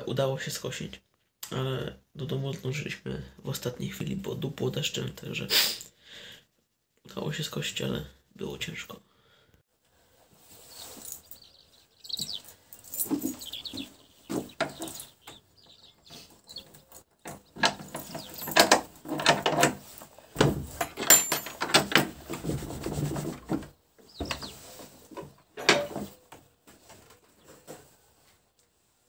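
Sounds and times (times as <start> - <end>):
small birds chirping: 10.4 - 19.1, 22.8 - 26.3
metal latch and chain rattling: 12.2 - 15.8, 16.5 - 22.4, 25.2 - 26.2.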